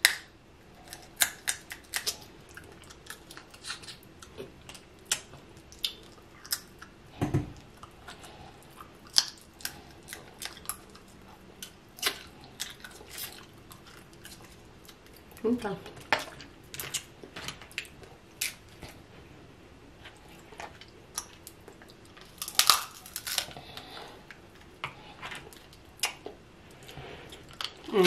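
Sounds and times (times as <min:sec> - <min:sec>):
crab shell cracking: 0:00.0 - 0:04.0, 0:21.1 - 0:23.9.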